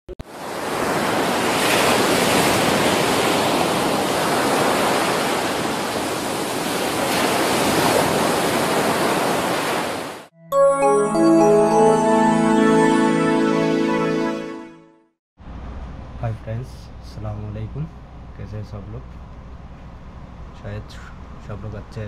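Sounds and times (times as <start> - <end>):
sea waves and surf rushing: 0.2 - 14.8.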